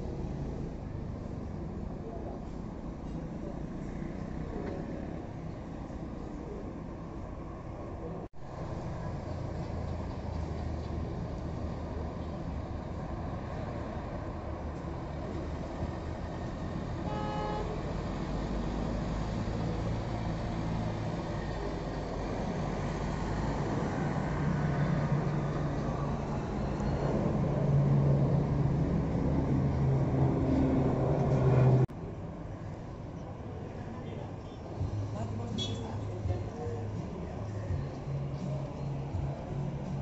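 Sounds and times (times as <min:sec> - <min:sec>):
short horn toot: 0:17.0 - 0:17.8.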